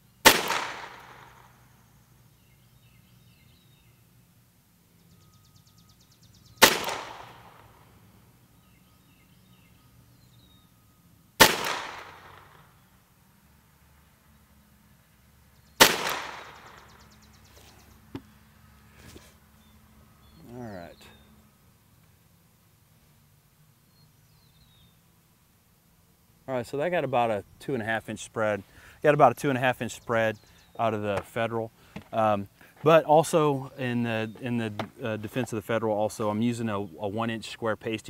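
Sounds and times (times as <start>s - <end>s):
pistol shots with echo: 0.2s - 1.6s, 6.6s - 7.8s, 11.4s - 12.7s, 15.8s - 17.0s.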